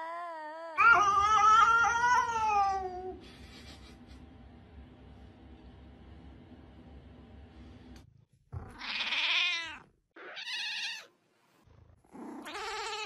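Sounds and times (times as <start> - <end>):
cat meowing: 0.8 - 3.1, 8.7 - 11.1.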